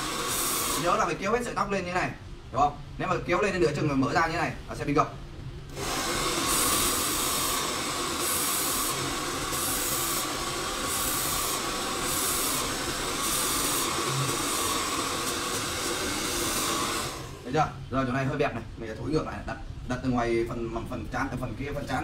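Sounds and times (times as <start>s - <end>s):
hair dryer blowing: 0.0s - 1.2s, 5.7s - 17.5s.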